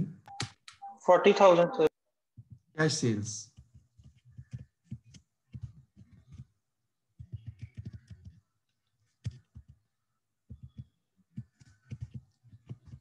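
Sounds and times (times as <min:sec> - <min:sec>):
keyboard typing: 0:03.5 - 0:06.6, 0:07.2 - 0:09.9, 0:10.5 - 0:13.0.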